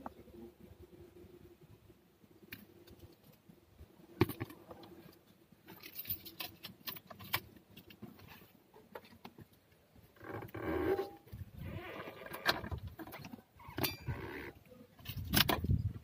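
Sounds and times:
clicks and rattles of tools: 5.6 - 9.4.

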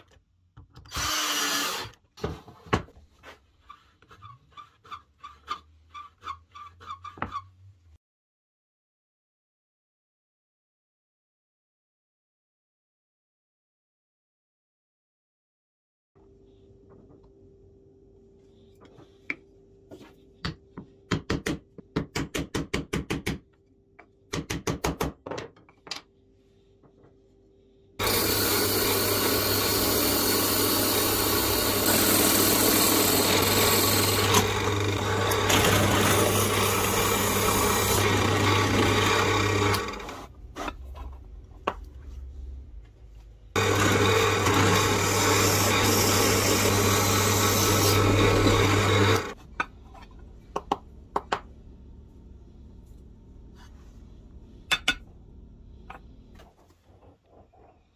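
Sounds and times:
drill press boring into wood: 0.9 - 2.0, 28.0 - 40.3, 43.6 - 49.4.

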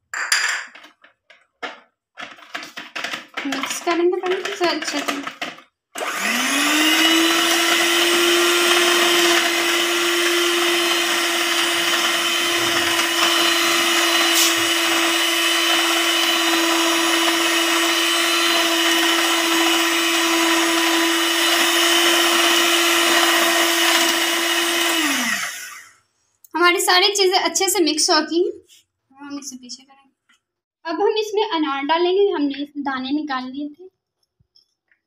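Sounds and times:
electric hand mixer whining: 3.4 - 26.0.

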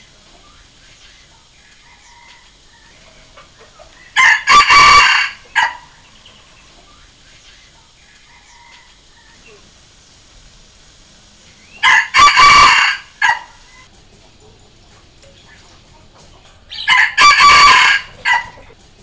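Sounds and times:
rooster crowing: 1.8 - 3.3, 4.0 - 6.2, 8.2 - 9.7, 11.6 - 13.9, 16.7 - 18.8.

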